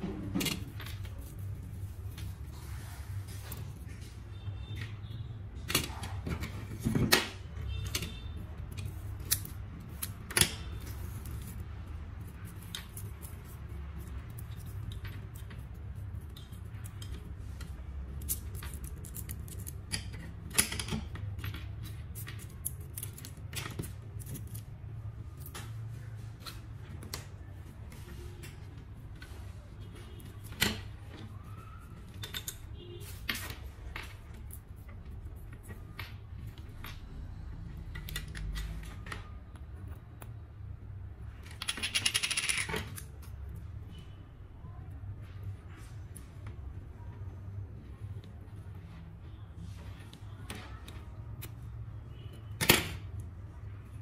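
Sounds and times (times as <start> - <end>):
wire strands clicking and rustling: 0.0 - 40.5.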